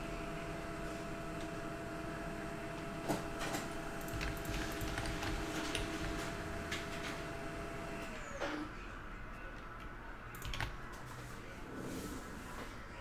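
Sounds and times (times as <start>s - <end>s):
printer whine: 0.0s - 8.6s.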